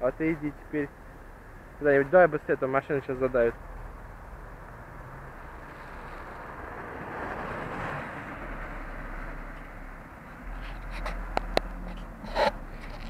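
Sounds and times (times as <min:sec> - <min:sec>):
car driving past: 0:03.6 - 0:10.8.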